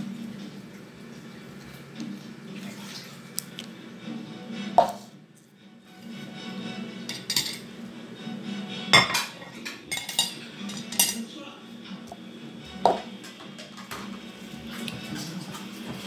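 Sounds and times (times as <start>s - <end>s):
plates and spoon clinking: 7.1s - 7.7s, 8.9s - 11.3s.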